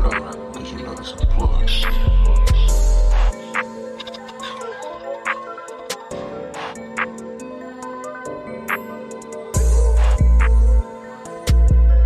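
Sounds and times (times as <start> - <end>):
ticking hi-hats: 0.0 - 3.7, 9.2 - 10.8.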